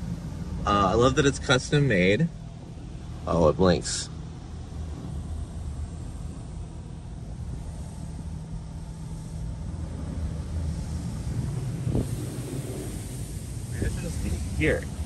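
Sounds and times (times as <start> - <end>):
low rumble: 0.0 - 15.0
hiss of water spray: 9.1 - 15.0.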